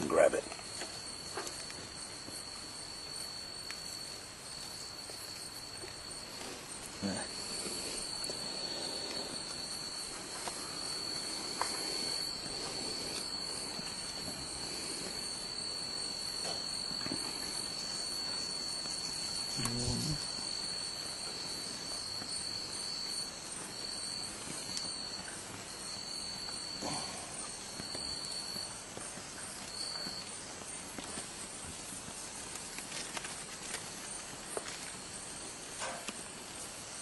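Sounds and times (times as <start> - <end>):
insect trilling: 0.0 - 36.0.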